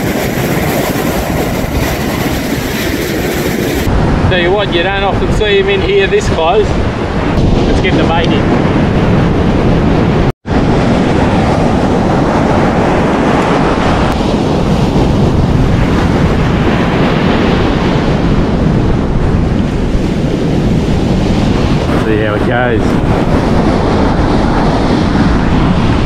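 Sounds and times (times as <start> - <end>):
surf breaking on beach: 0.0 - 26.0
wind buffeting microphone: 0.0 - 26.0.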